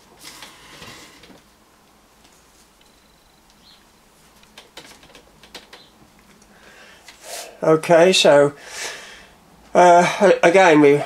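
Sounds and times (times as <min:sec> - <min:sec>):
soft rustle: 0:00.0 - 0:05.2.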